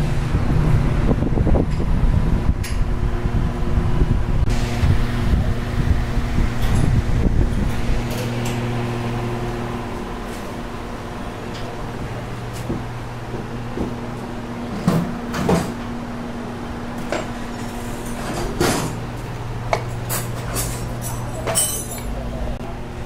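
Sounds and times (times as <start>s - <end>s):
steady low hum: 0.0s - 23.0s
metal scrap knocks and clanks: 14.6s - 15.8s, 17.0s - 19.0s.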